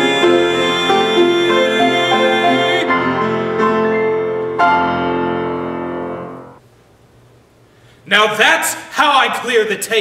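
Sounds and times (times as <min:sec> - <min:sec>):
piano chords: 0:00.0 - 0:06.6.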